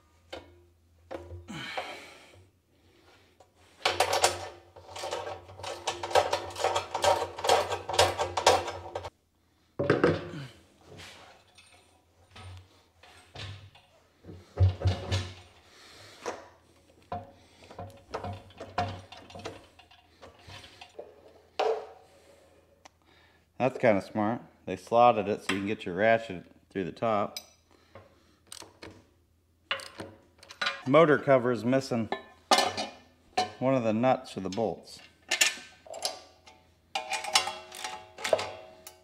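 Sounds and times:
knocks and clunks of plastic drum: 9.8 - 10.4, 14.4 - 15.4.

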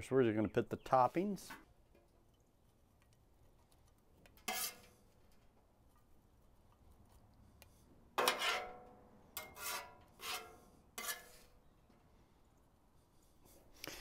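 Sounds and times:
metal spatula scraping griddle: 4.4 - 5.1, 8.2 - 11.6.

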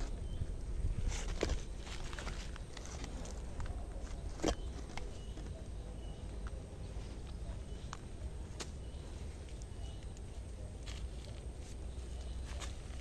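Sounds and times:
footsteps rustling through undergrowth: 10.8 - 13.0.

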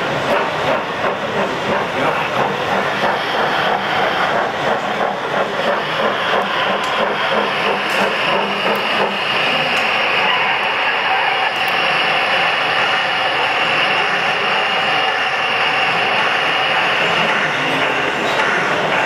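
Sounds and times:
model steam locomotive chuffing: 0.0 - 19.0
steam hissing: 0.0 - 19.0.

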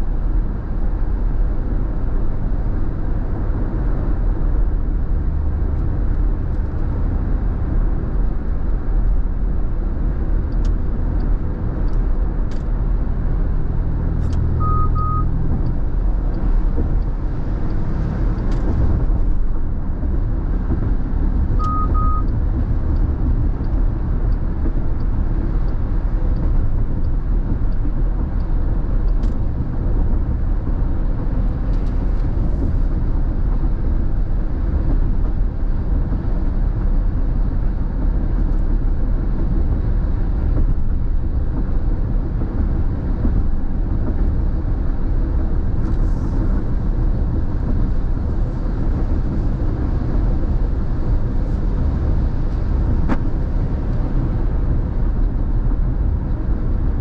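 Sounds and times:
car engine rumble: 0.0 - 57.0
double beeps: 14.5 - 15.4, 21.6 - 22.3.

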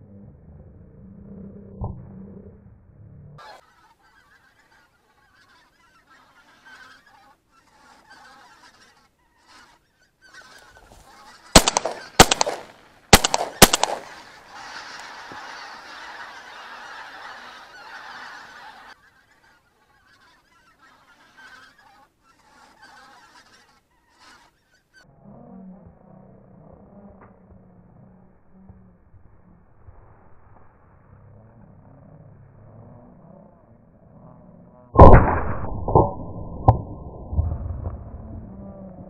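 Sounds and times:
geese honking: 3.4 - 25.0
shotgun shots: 11.5 - 14.4, 35.0 - 38.2.

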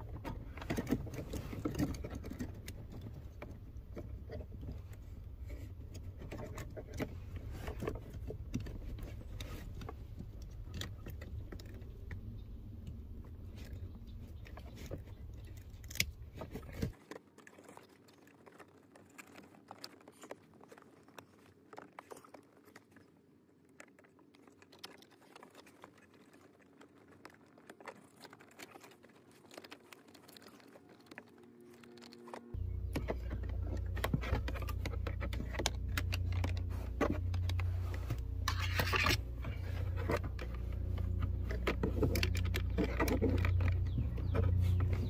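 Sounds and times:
wiring rustling: 0.0 - 23.1, 23.8 - 45.0.

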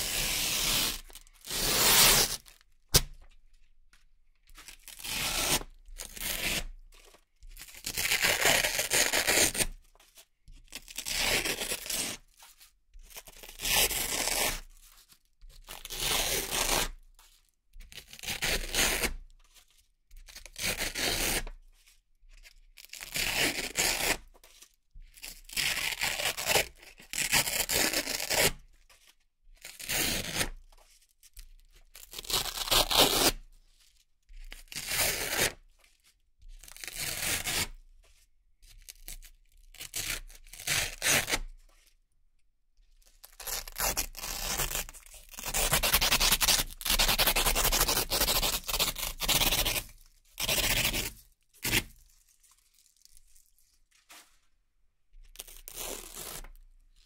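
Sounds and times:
velcro peeling: 0.0 - 3.2, 43.3 - 54.3, 55.4 - 56.6.

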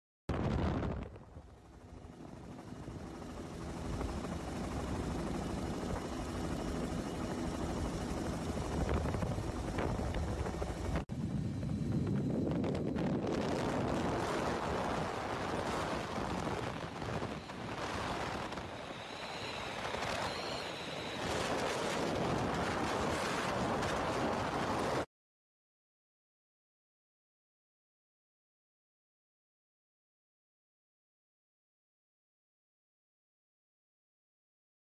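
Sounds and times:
rotor and wind rushing: 0.4 - 25.1
helicopter engine and rotor: 1.0 - 25.1
wavering high whine: 3.0 - 24.2.

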